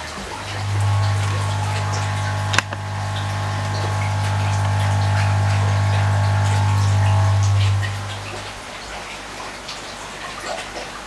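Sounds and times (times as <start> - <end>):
air compressor humming: 0.2 - 8.6
sharp click: 2.2 - 2.9.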